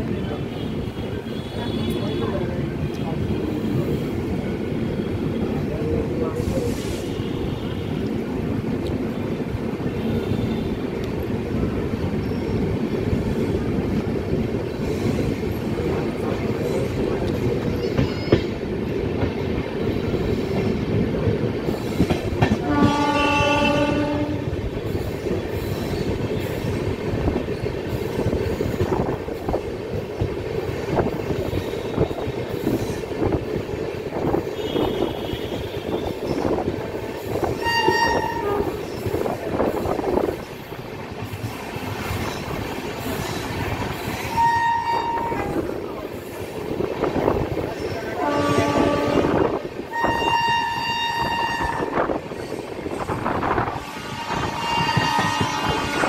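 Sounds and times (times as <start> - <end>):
train wheels rumbling on track: 0.0 - 56.0
train horn: 22.4 - 24.6, 34.6 - 36.3, 37.5 - 39.0, 44.3 - 45.6, 48.1 - 52.2, 53.5 - 56.0.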